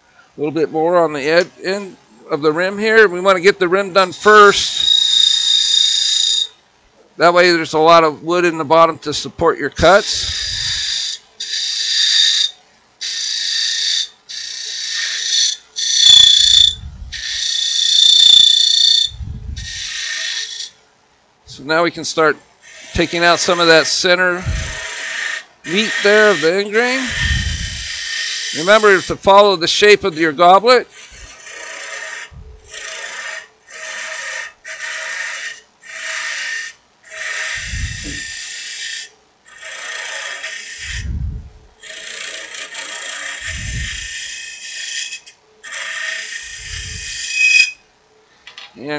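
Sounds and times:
lathe tool squealing on wood: 3.8 - 6.6, 9.8 - 20.8, 22.6 - 41.2, 41.8 - 47.9.

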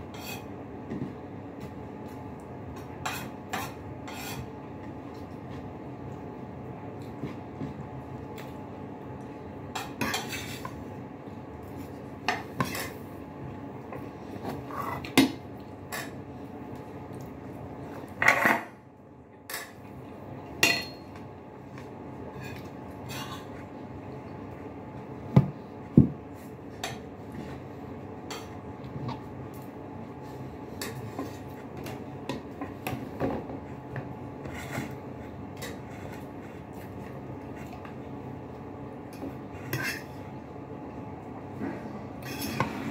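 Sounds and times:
spoon and ceramic dishes clinking: 20.6 - 21.1.

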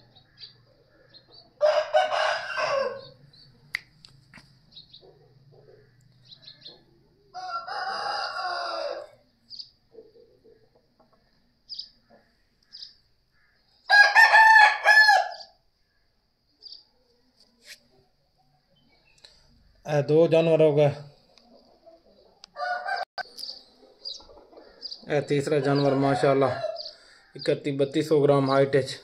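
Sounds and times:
rooster crowing: 1.6 - 3.2, 7.3 - 9.2, 13.9 - 15.5, 22.5 - 23.1, 25.6 - 27.0.

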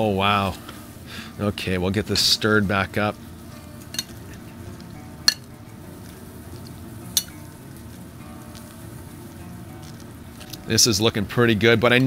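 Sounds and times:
low background noise: 0.0 - 12.0
spoon clinking against glass: 3.9 - 4.2.

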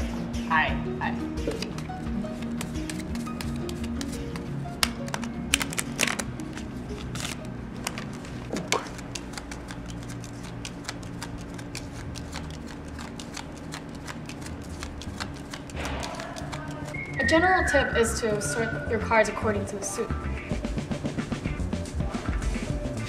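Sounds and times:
cards dealt onto stone floor: 1.4 - 17.0
playing cards being shuffled: 1.4 - 17.0.

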